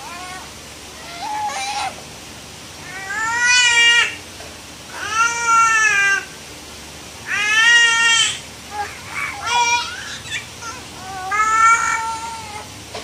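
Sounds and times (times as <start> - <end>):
infant crying: 1.0 - 2.0, 2.8 - 4.2, 5.0 - 6.3, 7.3 - 12.7.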